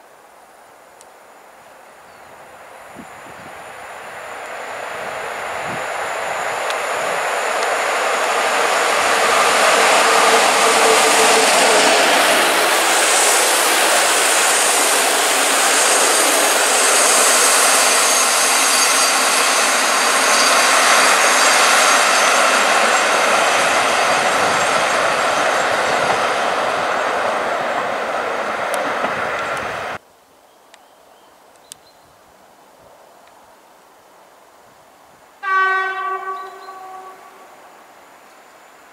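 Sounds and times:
train wheels rushing on rail: 2.7s - 30.0s.

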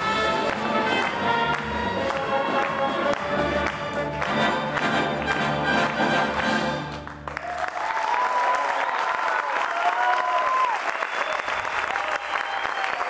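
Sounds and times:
audience applauding: 0.0s - 13.0s
audience cheering: 7.3s - 13.0s.

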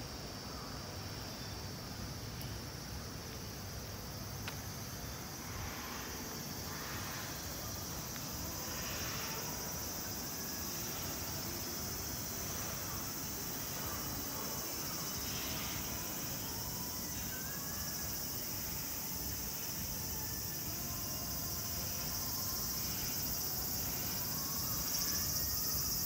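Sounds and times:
insects shrilling: 3.4s - 26.0s.

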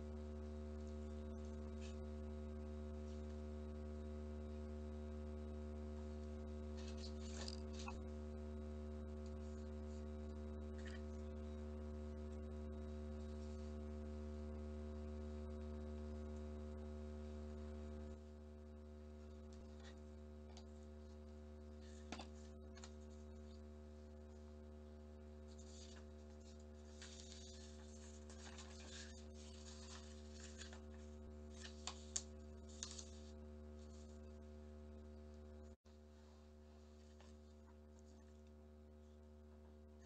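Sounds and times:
low electrical hum: 0.0s - 40.0s
paper rustling and tapping: 6.8s - 8.0s, 21.8s - 23.1s, 25.5s - 33.3s.

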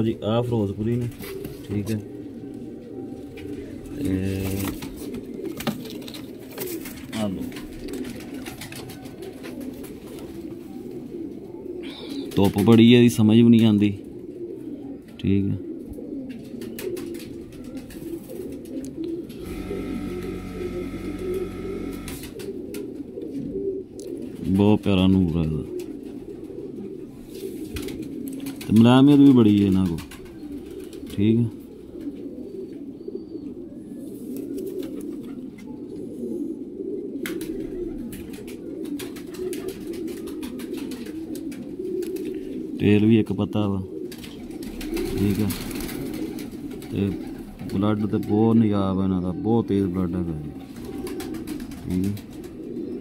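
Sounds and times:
pigeons cooing: 0.0s - 53.0s
steady hum: 19.4s - 22.3s.

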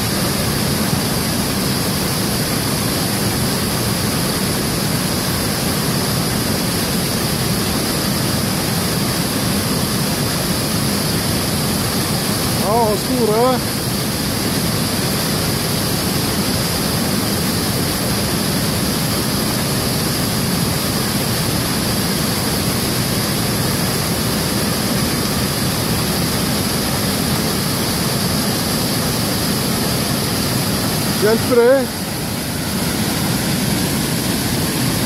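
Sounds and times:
river water rushing: 8.2s - 35.0s.

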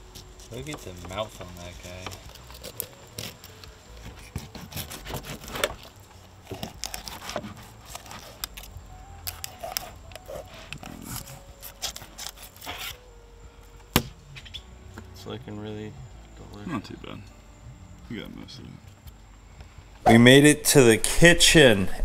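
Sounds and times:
knife cutting fish: 4.2s - 5.9s, 6.5s - 8.7s, 9.3s - 13.0s.

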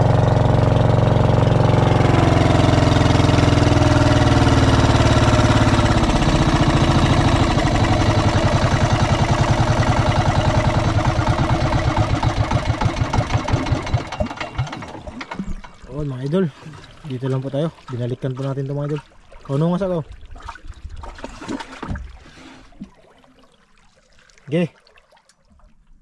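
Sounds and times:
small boat engine running: 0.0s - 20.3s.

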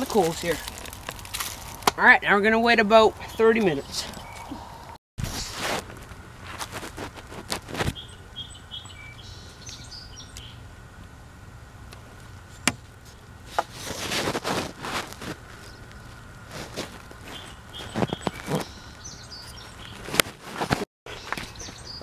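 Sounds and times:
high bird chirps: 3.3s - 4.7s, 8.0s - 10.6s, 17.3s - 20.0s, 21.1s - 22.0s.

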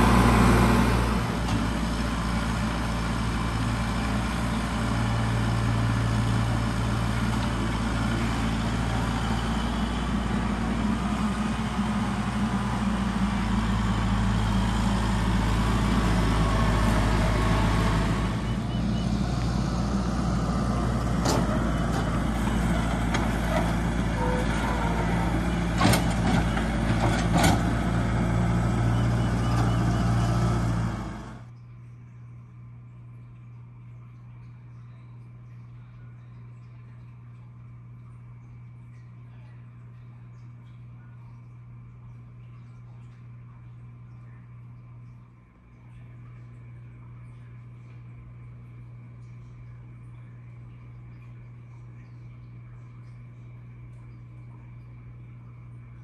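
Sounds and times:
tractor diesel engine running: 0.0s - 31.5s.

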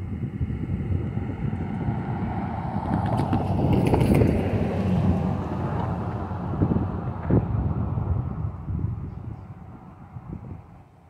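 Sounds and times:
wind on microphone: 0.0s - 11.0s
car driving past: 0.6s - 8.8s.

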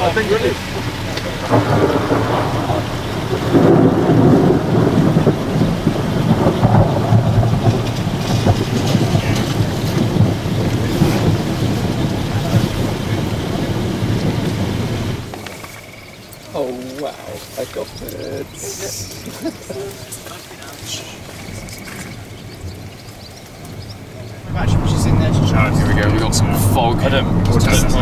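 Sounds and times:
rolling thunder: 0.0s - 16.2s, 21.4s - 28.0s.

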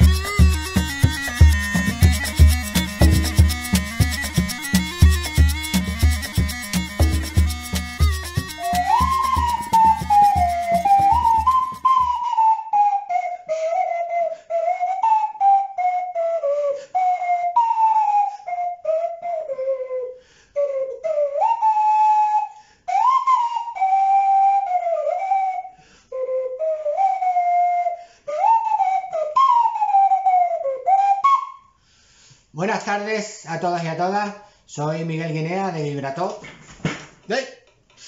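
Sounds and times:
backing track with a beat: 0.0s - 12.0s
homemade flute whistle-like tone: 0.0s - 31.8s.

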